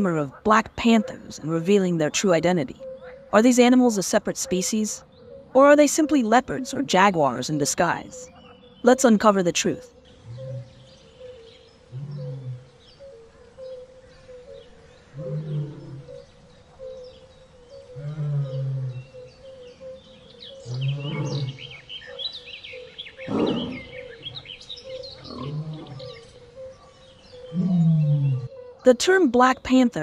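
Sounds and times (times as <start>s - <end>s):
birds chirping: 0.0s - 30.0s
big cat grunting roars: 11.9s - 12.8s, 15.2s - 16.1s, 18.0s - 19.1s, 20.6s - 21.7s, 23.2s - 24.0s, 25.2s - 26.3s, 27.5s - 28.5s.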